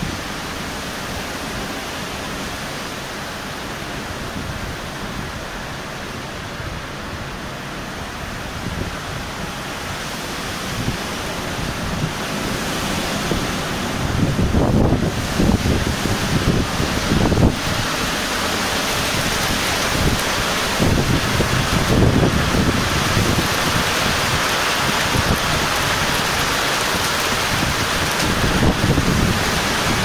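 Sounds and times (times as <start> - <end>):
heavy rain: 0.0 - 30.0
strong wind: 0.0 - 30.0
wind buffeting microphone: 8.2 - 30.0.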